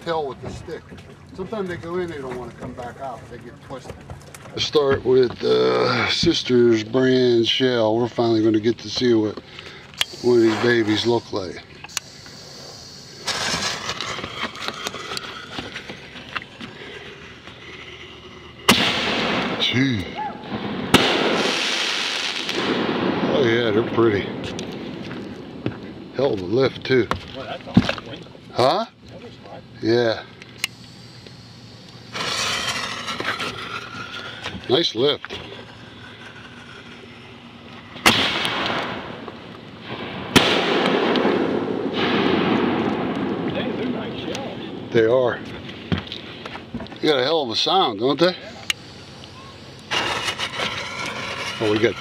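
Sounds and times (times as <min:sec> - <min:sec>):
fuse hissing and crackling: 0:04.2 - 0:52.0
firework reports: 0:04.6 - 0:28.7, 0:29.8 - 0:45.6, 0:47.1 - 0:52.0
rumbling echo and crackle: 0:20.4 - 0:28.1, 0:32.2 - 0:45.8.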